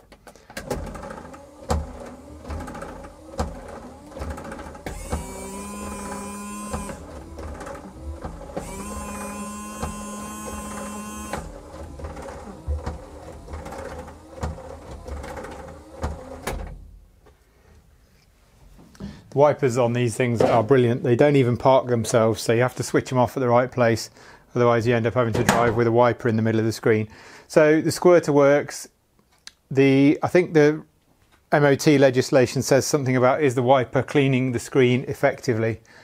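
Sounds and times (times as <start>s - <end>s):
wiper arm clicking: 0.0s - 16.8s
washer pump whining: 0.0s - 17.0s
wiper motor running: 0.6s - 16.8s.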